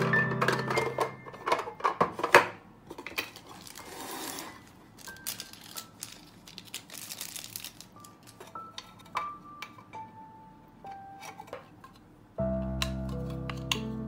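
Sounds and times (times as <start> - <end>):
plastic film rustling: 3.3 - 9.2.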